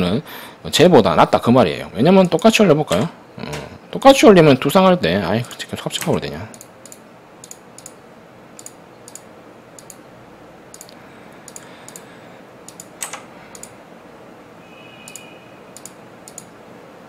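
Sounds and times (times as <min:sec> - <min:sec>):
mouse and keyboard clicking: 0:06.0 - 0:08.0, 0:08.6 - 0:10.0, 0:10.7 - 0:12.0, 0:12.7 - 0:13.8, 0:15.1 - 0:16.5.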